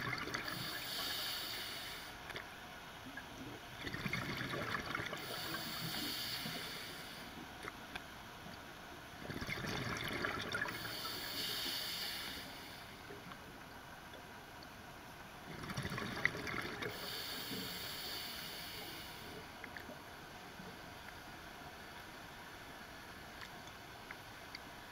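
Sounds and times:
crackling exhaust bubbles: 0:00.0 - 0:01.2, 0:03.1 - 0:07.8, 0:09.2 - 0:13.5, 0:15.4 - 0:18.1
scuba regulator breathing underwater: 0:00.4 - 0:02.2, 0:05.2 - 0:07.4, 0:10.7 - 0:13.0, 0:16.9 - 0:19.5.

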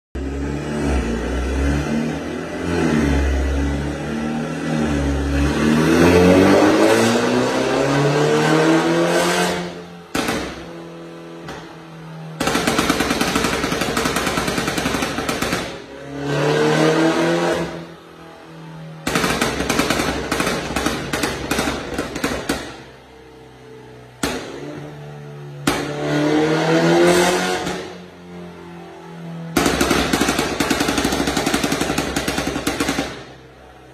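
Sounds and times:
car engine revving: 0:00.2 - 0:33.9.

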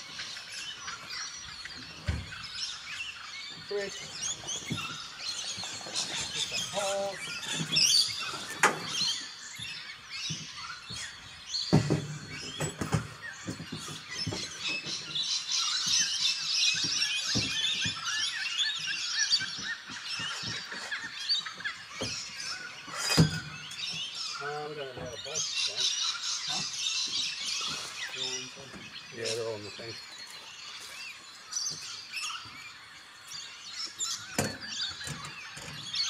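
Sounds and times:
birds chirping: 0:00.0 - 0:36.0.

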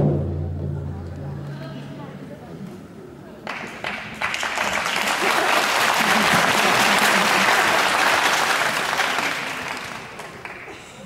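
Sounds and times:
audience clapping: 0:03.4 - 0:11.0.

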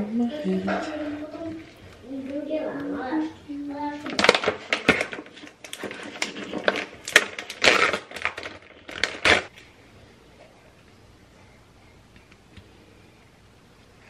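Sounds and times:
plastic bag crinkling: 0:03.8 - 0:09.7.

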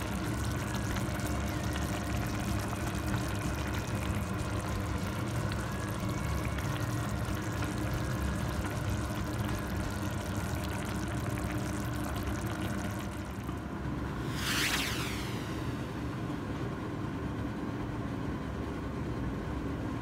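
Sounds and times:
sauce simmering in a frying pan: 0:00.0 - 0:14.3
low hum: 0:00.0 - 0:18.4
sweeping whoosh: 0:14.1 - 0:16.5.

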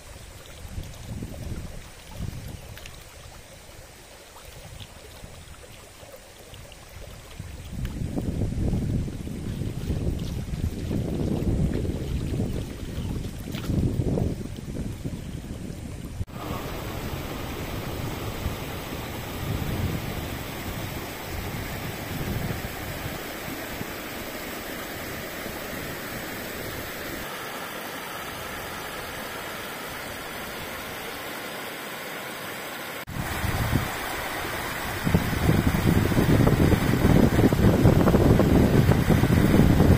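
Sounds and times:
louder lower water rush: 0:16.1 - 0:39.9
river water rushing over rocks: 0:16.3 - 0:39.9.

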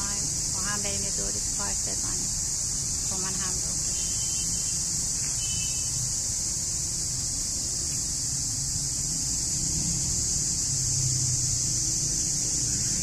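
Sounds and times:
constant high hiss: 0:00.0 - 0:13.0.

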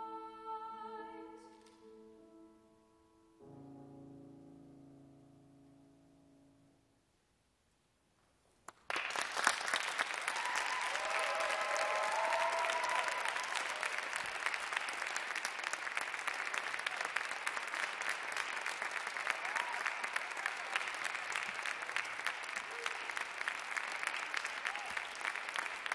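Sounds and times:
audience applauding: 0:08.7 - 0:25.9
people cheering: 0:08.9 - 0:25.9.

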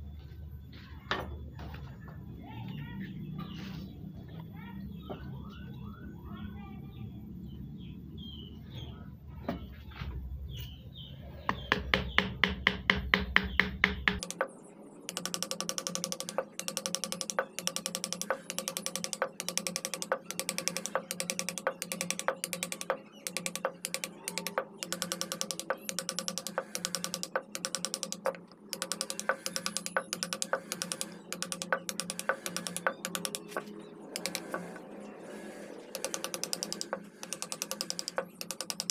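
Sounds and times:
carving gouge clicking into wood: 0:11.5 - 0:14.5, 0:15.1 - 0:34.8, 0:35.4 - 0:38.9.

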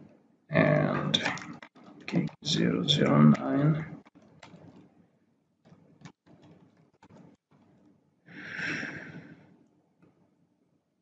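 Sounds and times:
person breathing near microphone: 0:08.3 - 0:09.5.

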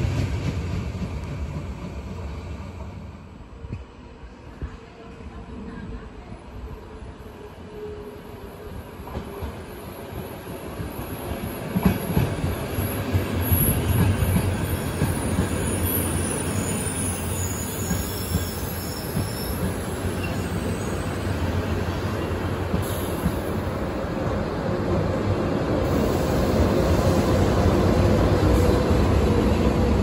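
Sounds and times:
train coaches rumbling past: 0:00.0 - 0:30.0
train wheel squeal: 0:09.2 - 0:23.6.

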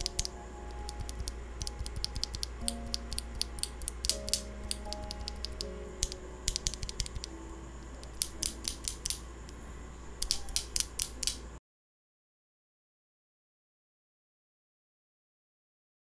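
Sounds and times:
keyboard switch clacking: 0:00.0 - 0:07.4, 0:08.0 - 0:09.6, 0:10.2 - 0:11.5.

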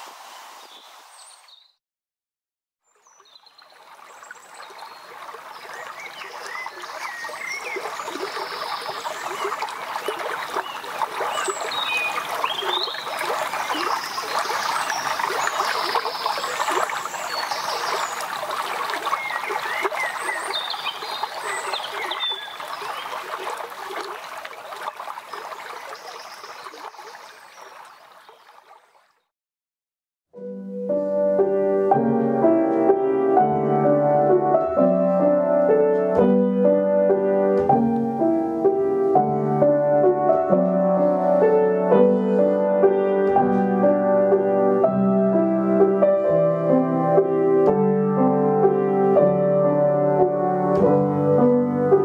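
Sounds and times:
birds chirping: 0:02.9 - 0:29.3
water gurgling in ditch: 0:03.0 - 0:29.2.

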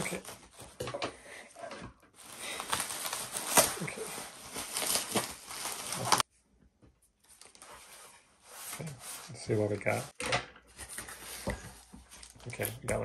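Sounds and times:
bubble wrap crinkling: 0:00.0 - 0:00.8, 0:02.2 - 0:06.3, 0:07.2 - 0:10.1.

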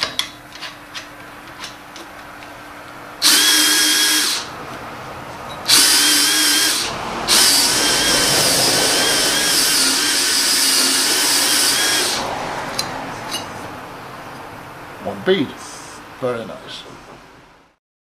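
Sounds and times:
cordless drill whining: 0:03.2 - 0:04.5, 0:05.6 - 0:12.4.

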